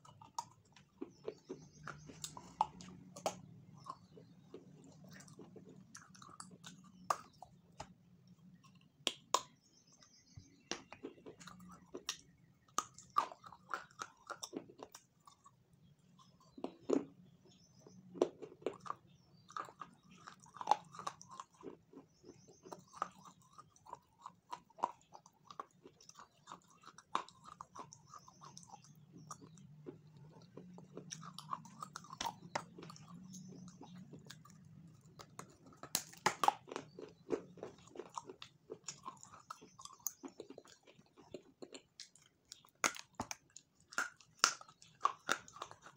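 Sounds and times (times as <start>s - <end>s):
person chewing food: 0.0s - 45.9s
wet mouth clicks and smacks: 41.7s - 45.9s.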